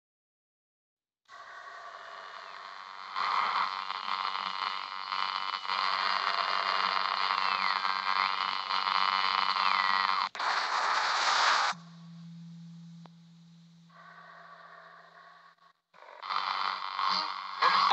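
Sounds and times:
harsh static hiss: 0:01.3 - 0:17.9
short burst of static: 0:03.3 - 0:12.0.

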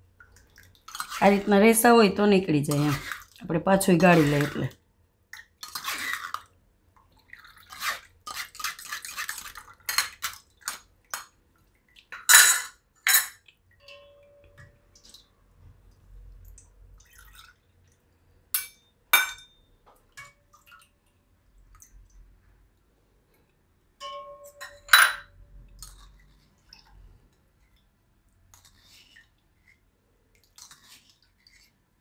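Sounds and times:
ladle scraping metal strainer: 0:02.6 - 0:04.7.

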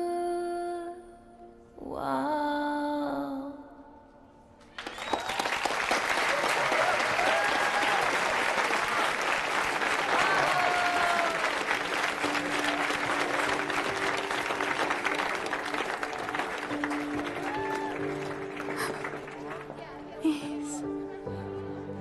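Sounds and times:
crowd applauding and cheering: 0:04.6 - 0:20.6
shouted cheers: 0:04.8 - 0:09.2, 0:09.8 - 0:11.8, 0:17.2 - 0:18.4
soft backing music: 0:10.5 - 0:22.0.

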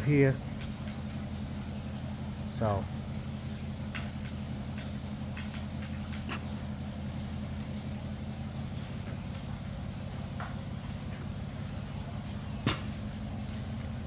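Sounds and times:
pressure washer engine running: 0:00.0 - 0:14.0.

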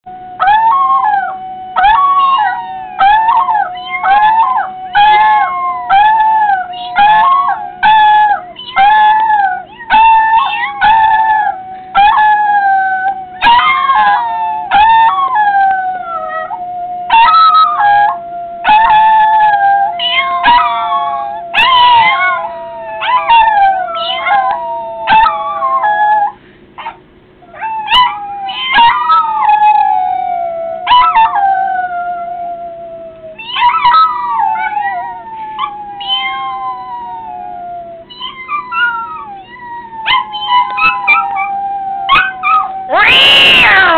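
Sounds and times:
dog howling: 0:00.3 - 0:43.9
people meowing: 0:42.9 - 0:43.9.

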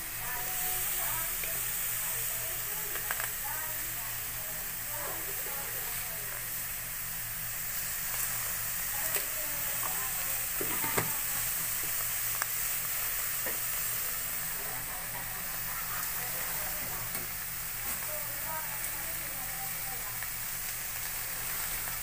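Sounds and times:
food sizzling in a pan: 0:00.0 - 0:22.0.

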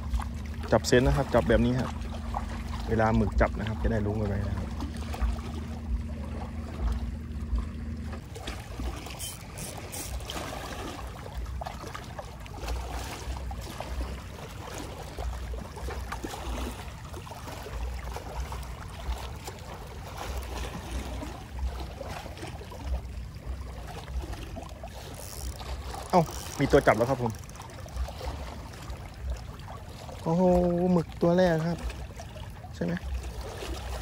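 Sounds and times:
low rumbles on microphone: 0:00.0 - 0:08.4
sea waves lapping on shore: 0:00.0 - 0:34.0.

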